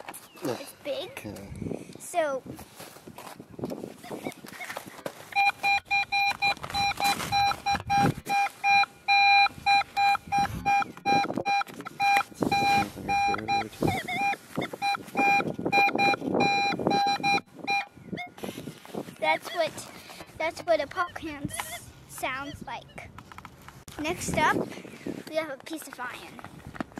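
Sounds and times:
metal detector beeping: 4.0s - 18.4s.

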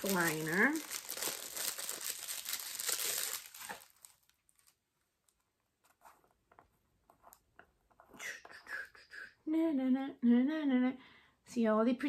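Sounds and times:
packaging crinkling: 0.0s - 4.8s.

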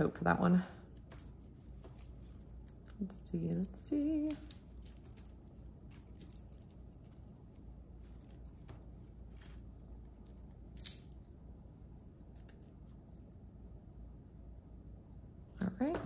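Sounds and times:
jewelry clicking: 0.9s - 11.3s.

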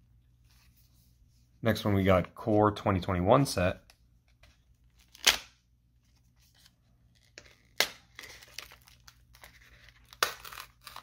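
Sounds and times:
wrapper crinkling and ripping: 7.2s - 11.0s.

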